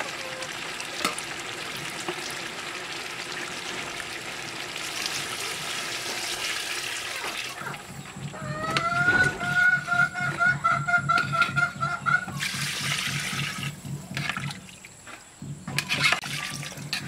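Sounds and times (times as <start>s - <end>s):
water splashing and hissing on hot food: 0.0s - 10.0s, 12.4s - 15.0s.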